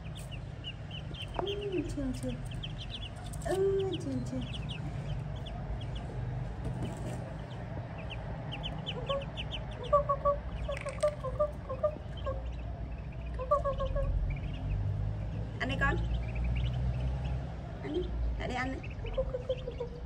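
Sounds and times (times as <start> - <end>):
ducklings peeping: 0.0 - 20.0
steady low hum: 0.0 - 20.0
bird clucking calls: 7.1 - 12.5.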